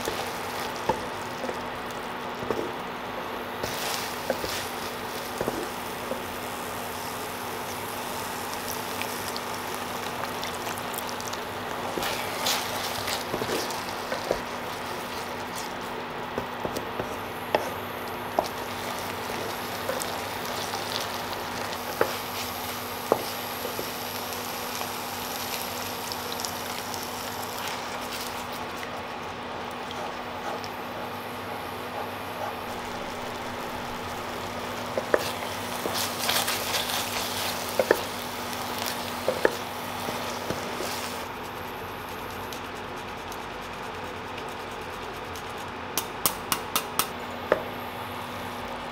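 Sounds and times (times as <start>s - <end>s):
spatula stirring and tapping pan: 0.0s - 6.4s, 11.2s - 24.0s, 27.6s - 41.2s
food sizzling in a frying pan: 0.0s - 15.6s, 17.3s - 28.6s, 32.6s - 41.2s.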